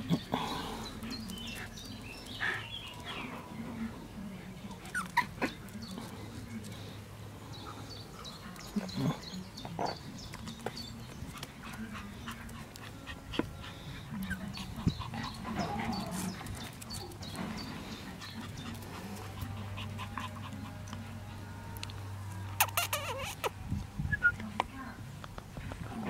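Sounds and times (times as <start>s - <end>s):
puppies whimpering: 4.8s - 5.7s, 11.1s - 21.7s, 22.6s - 23.6s.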